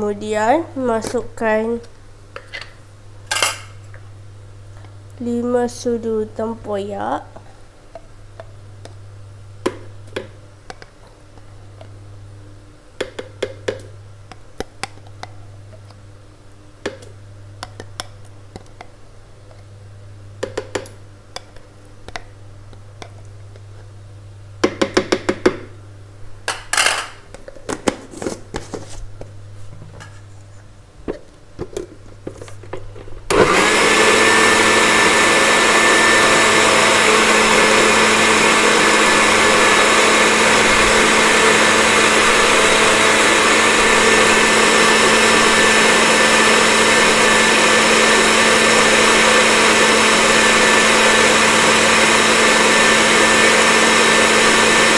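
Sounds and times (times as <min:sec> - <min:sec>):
electric blender running: 0:33.3 - 0:54.9.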